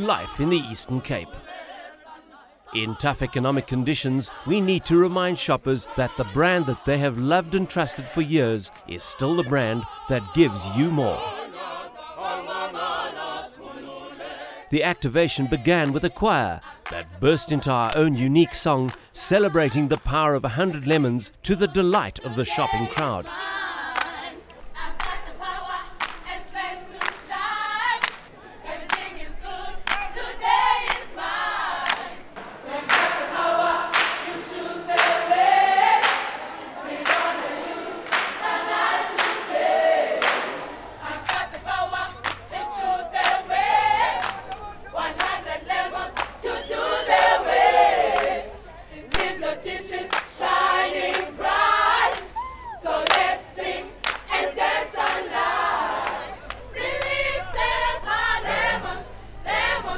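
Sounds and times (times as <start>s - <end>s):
choir singing upbeat song: 0.0s - 59.9s
sharp claps: 24.0s - 25.2s, 26.0s - 26.3s, 27.0s - 27.3s, 28.0s - 28.3s, 28.9s - 29.1s, 29.8s - 30.2s, 30.9s - 31.1s, 31.8s - 32.1s, 32.9s - 35.4s, 36.0s - 37.4s, 38.0s - 38.5s, 39.1s - 39.6s, 40.2s - 41.6s, 42.2s - 45.4s, 46.1s - 46.5s, 47.1s - 47.4s, 48.1s - 48.4s, 49.1s - 49.4s, 50.1s - 50.4s, 51.1s - 51.3s, 52.1s - 52.4s, 53.0s - 53.3s, 54.0s - 54.4s.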